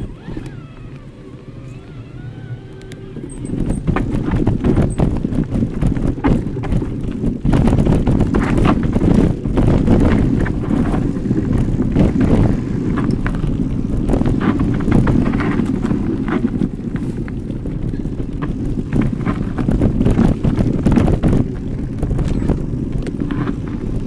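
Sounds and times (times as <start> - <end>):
bike knocking and rattling: 0.0 - 24.0
bike tyres rumbling on dirt: 0.0 - 24.0
wind on microphone: 0.0 - 24.0.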